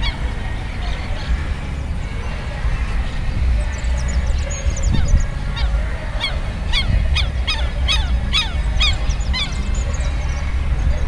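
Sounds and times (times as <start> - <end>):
wind rumble on microphone: 0.0 - 11.0
bird calling in sharp notes: 3.5 - 11.0.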